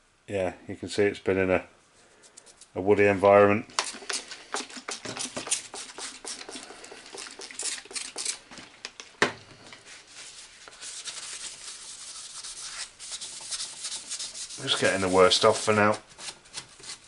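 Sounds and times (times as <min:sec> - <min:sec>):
spray bottle squirting: 0:03.7 - 0:08.4
hand rubbing metal: 0:09.8 - 0:17.0.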